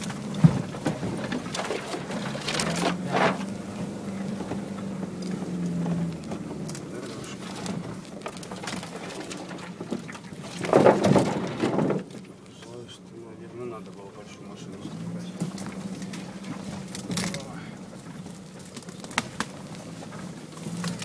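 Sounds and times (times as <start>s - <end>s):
knocks and rattles: 0.0s - 3.6s, 4.4s - 12.4s
vehicle engine low hum: 0.0s - 21.0s.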